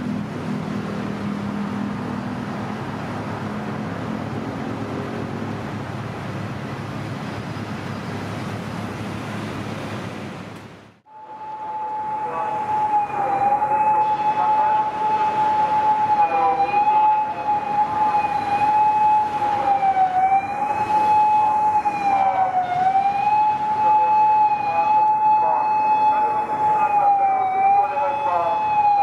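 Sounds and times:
passing city traffic: 0.0 - 29.0
police siren: 11.1 - 29.0.

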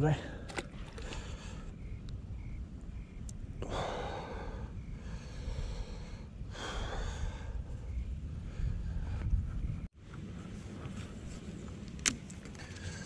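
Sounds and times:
steady low rumble: 0.4 - 13.0
person breathing heavily: 3.6 - 9.5.

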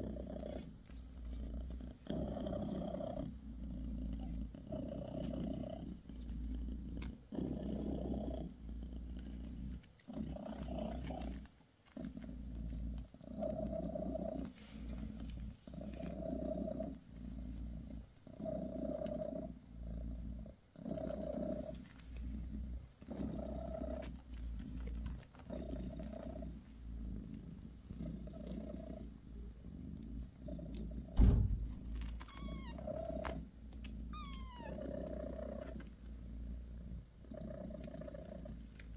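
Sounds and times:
cat purring: 0.0 - 38.9
knock: 31.2 - 32.1
kitten squeaking: 31.9 - 33.1, 34.1 - 34.9.

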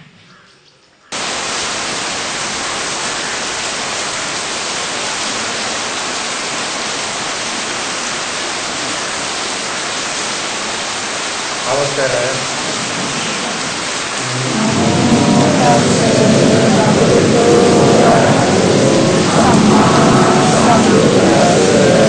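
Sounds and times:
loud steady hiss: 1.2 - 22.0.

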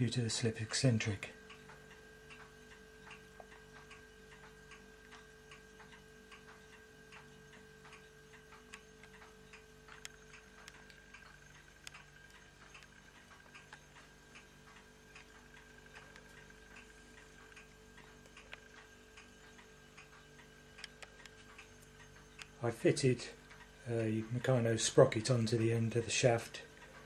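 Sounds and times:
steady low hum: 0.0 - 27.0
faint light ticks and clicks: 1.4 - 22.6.

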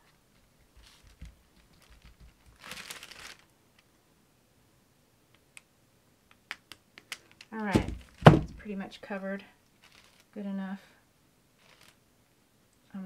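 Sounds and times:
crinkling rustle: 0.0 - 3.9, 7.0 - 8.7, 9.6 - 10.4, 11.6 - 12.0
soft bumps of canvas handling: 7.7 - 8.6.

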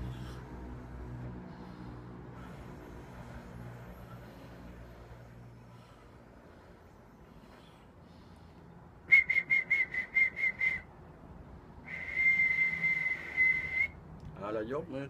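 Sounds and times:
man whistling: 9.1 - 10.9, 11.8 - 14.0.

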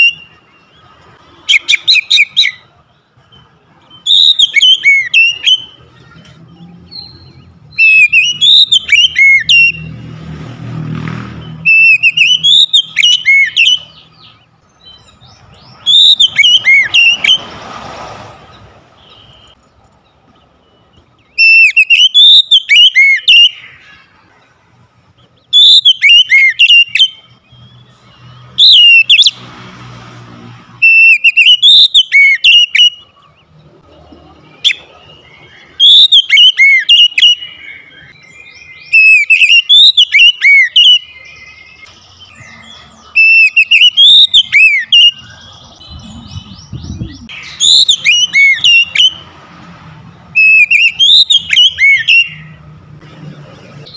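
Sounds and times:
bird singing whistled phrases: 1.5 - 2.7, 3.9 - 5.8, 6.6 - 9.9, 11.4 - 17.5, 20.7 - 23.9, 25.5 - 29.4, 30.8 - 33.2, 34.6 - 49.2, 50.4 - 52.6.

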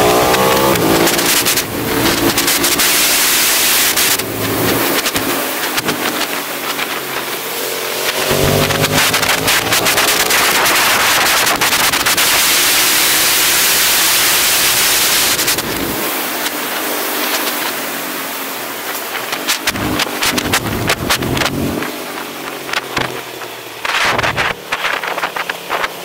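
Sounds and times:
motorcycle engine revving: 0.0 - 26.0
wind rushing over microphone: 19.2 - 21.9.

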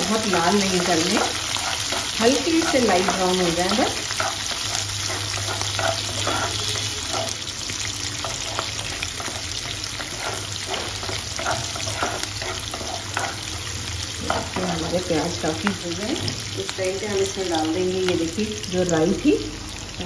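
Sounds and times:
wooden spatula scraping pan: 0.0 - 7.4, 8.2 - 13.6
onions sizzling in oil: 0.0 - 20.0.

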